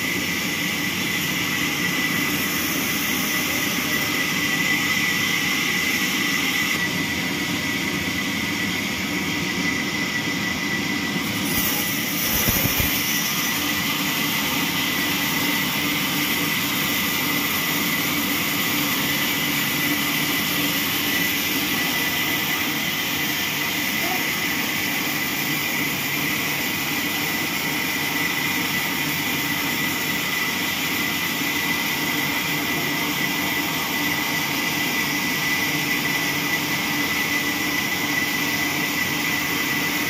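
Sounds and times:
band saw cutting log: 11.2 - 22.9.

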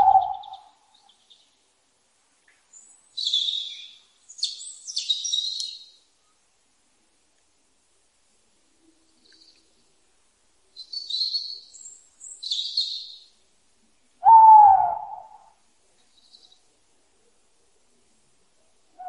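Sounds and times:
owl calling: 0.0 - 1.1, 14.2 - 15.6.

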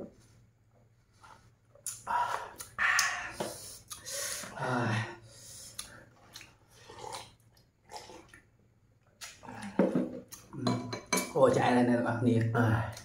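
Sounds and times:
eating from a bowl: 5.7 - 8.5.

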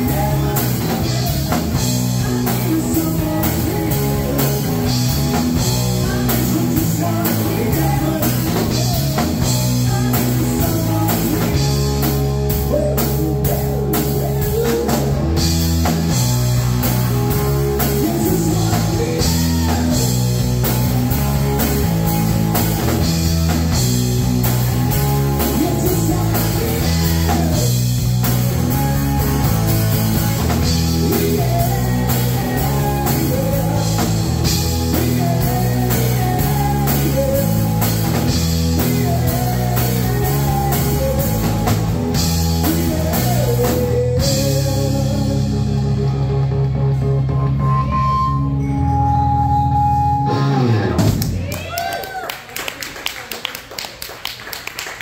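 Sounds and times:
man singing into a microphone: 0.0 - 15.5, 16.1 - 20.4, 25.4 - 27.9, 30.6 - 46.2
drum kit beat: 0.0 - 46.1
bass guitar: 0.0 - 52.2
electric guitar: 0.0 - 52.2.

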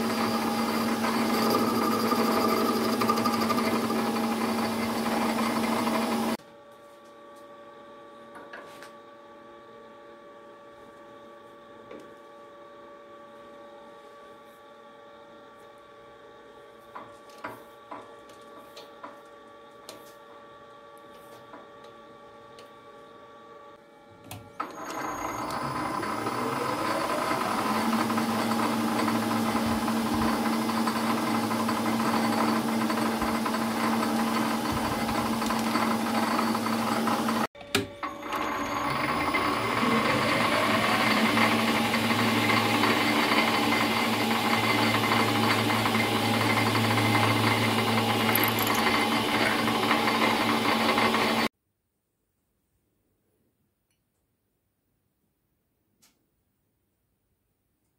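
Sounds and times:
lathe motor whining: 0.0 - 6.4, 24.6 - 51.5.

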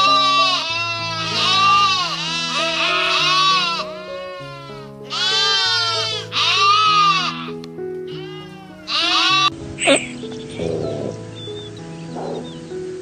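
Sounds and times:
lamb bleating: 0.0 - 10.0
background music with low notes: 0.0 - 13.0.

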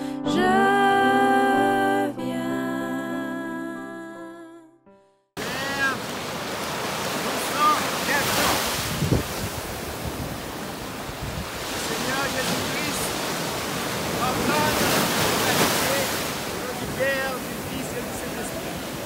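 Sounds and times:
music: 0.0 - 5.4
waves breaking on shore: 5.4 - 19.0.

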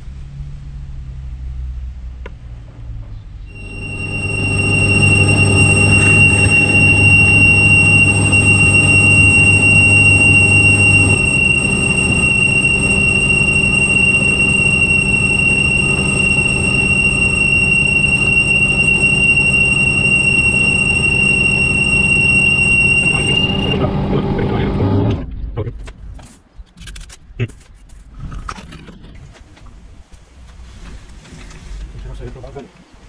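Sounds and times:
lathe motor hum: 3.5 - 25.0
lathe cutting squeal: 3.5 - 25.1.

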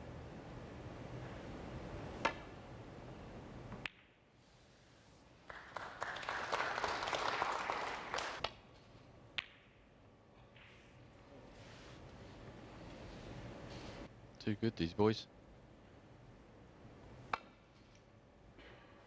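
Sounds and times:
audience applause: 5.5 - 8.4.

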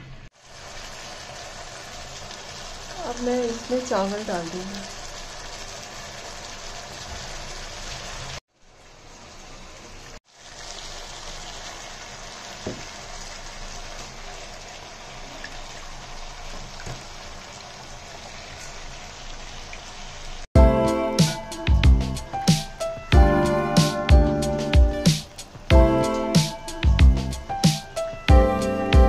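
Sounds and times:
vegetables sizzling in a pan: 0.0 - 20.5.

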